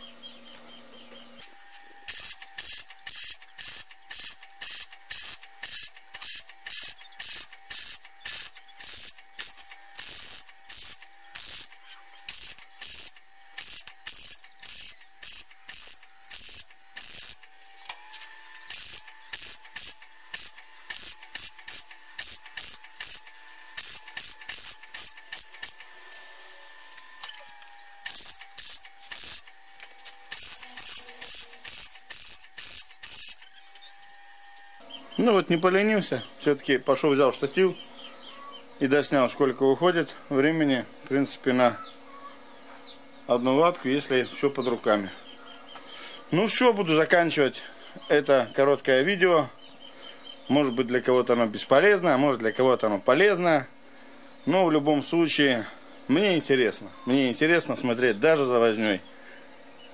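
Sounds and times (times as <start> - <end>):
welder arc crackling and sizzling: 1.4 - 34.8.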